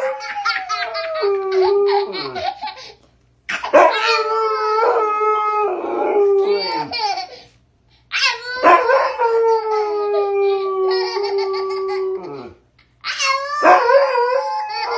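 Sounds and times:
dog howling: 0.0s - 2.4s, 3.7s - 7.0s, 8.5s - 12.6s, 13.4s - 14.9s.

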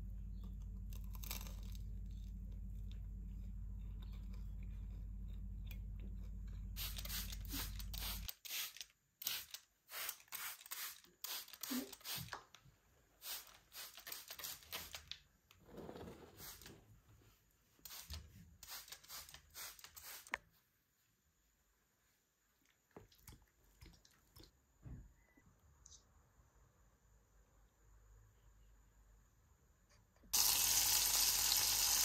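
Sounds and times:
steady low hum: 0.0s - 8.0s
spray bottle hissing sprays: 6.8s - 12.4s, 13.2s - 15.0s, 17.8s - 20.4s.

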